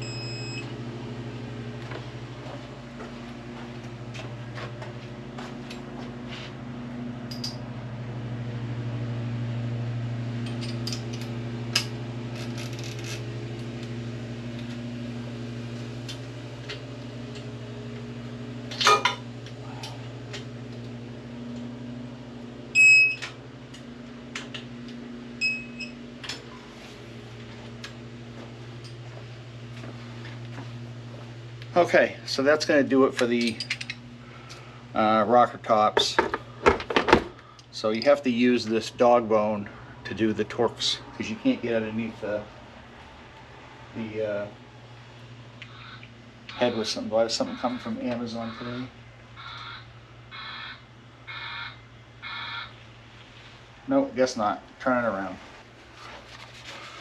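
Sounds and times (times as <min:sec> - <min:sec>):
short electronic beeps: 0:00.0 - 0:00.7
low hum: 0:00.0 - 0:57.0
metal tool clicks and clanks: 0:07.3 - 0:07.6, 0:33.4 - 0:34.0.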